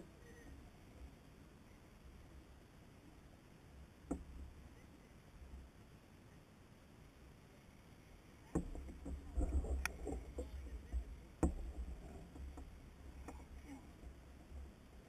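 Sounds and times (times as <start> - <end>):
knocks on plastic kayak: 11.4 - 11.7.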